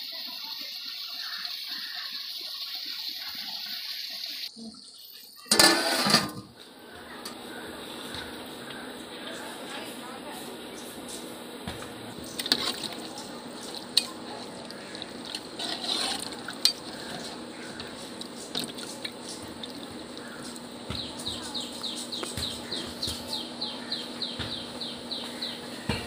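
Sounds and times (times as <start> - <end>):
liquid sloshing: 12.0 - 21.4
metal spoon stirring in a pot: 12.1 - 22.1.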